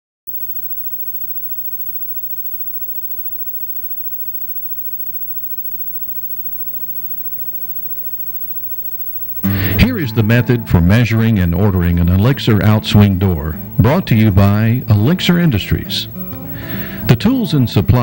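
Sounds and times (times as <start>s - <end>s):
low electrical hum: 0.3s - 18.0s
steady hiss: 9.2s - 18.0s.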